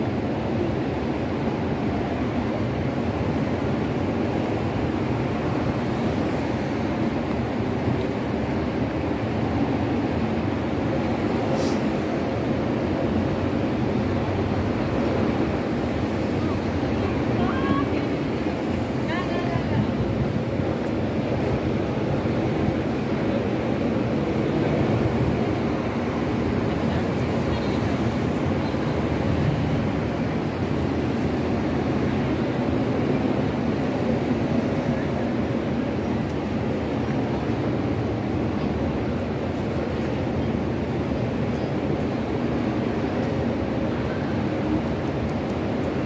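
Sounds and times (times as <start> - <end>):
street noise: 0.0 - 46.0
crowd chatter: 23.0 - 29.8.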